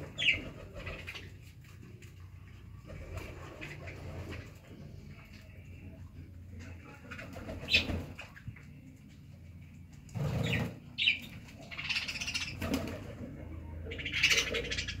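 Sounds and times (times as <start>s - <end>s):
pigeons cooing: 0.0s - 1.4s, 10.2s - 15.0s.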